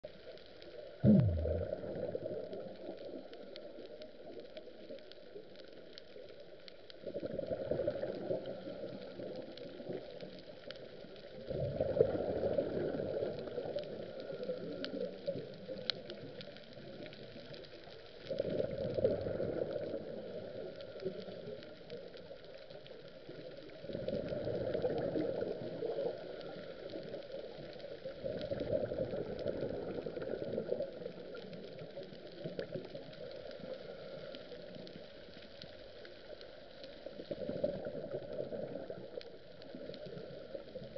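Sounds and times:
steady underwater hiss: 0.0s - 40.9s
scuba regulator bubbling: 0.8s - 4.9s, 11.4s - 17.0s.

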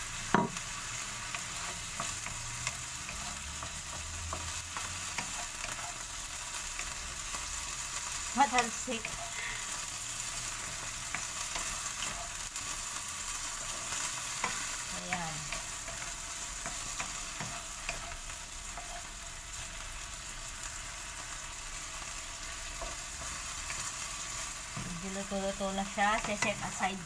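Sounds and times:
chicken sizzling in oil: 0.0s - 27.0s
wooden spatula scraping a pan: 1.3s - 7.3s, 8.4s - 19.2s.

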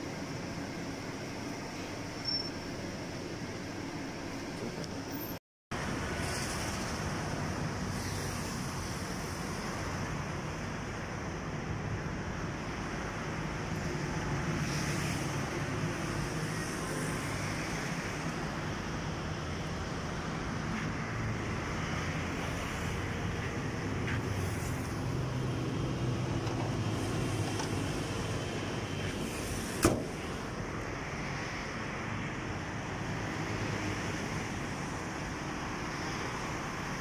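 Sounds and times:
car bonnet shutting thump: 29.8s - 30.2s.

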